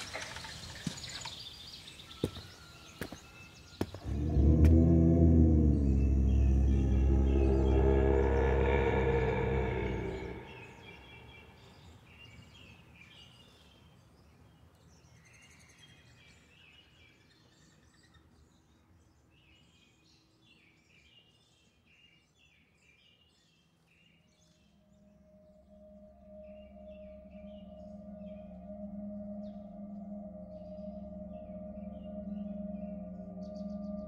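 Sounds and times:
bird chirps: 0.0s - 13.9s, 23.6s - 34.0s.

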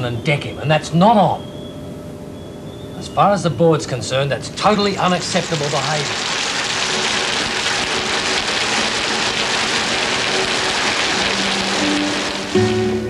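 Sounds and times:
steady rushing hiss: 3.4s - 13.0s.

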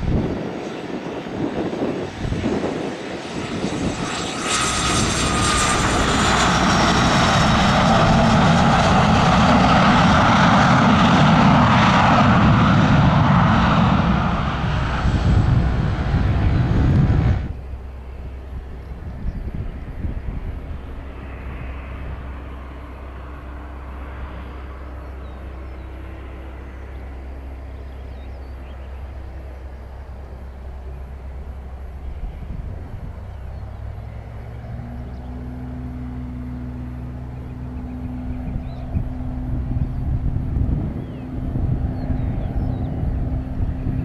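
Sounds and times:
jet engines roaring with turbine whine: 0.0s - 44.0s
piston engine low drone: 0.0s - 44.0s.

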